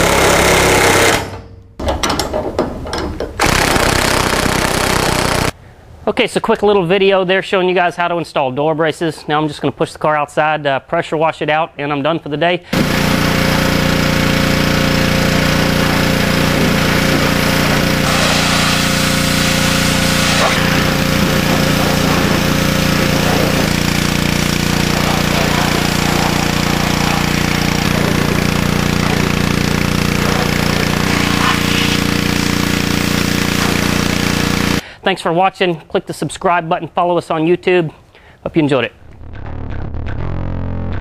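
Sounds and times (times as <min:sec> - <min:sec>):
pressure washer engine running: 0:00.0 - 0:01.3, 0:03.5 - 0:05.5, 0:12.8 - 0:34.8
water jet spraying sheet metal: 0:12.8 - 0:34.8.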